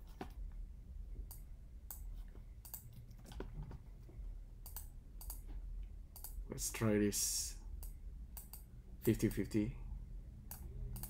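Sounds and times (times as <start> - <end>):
mouse clicks: 4.6 - 5.4.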